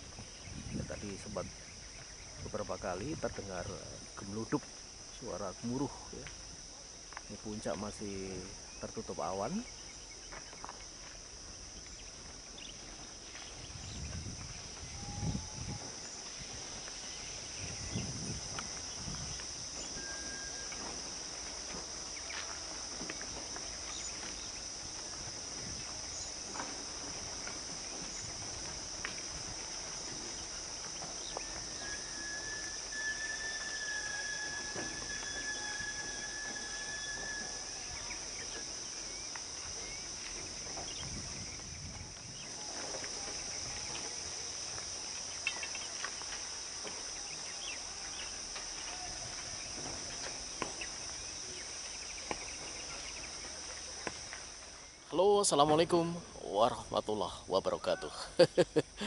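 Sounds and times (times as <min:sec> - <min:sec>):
insects droning: 0:00.0 - 0:59.0
whistles: 0:19.8 - 0:20.9, 0:31.2 - 0:38.6.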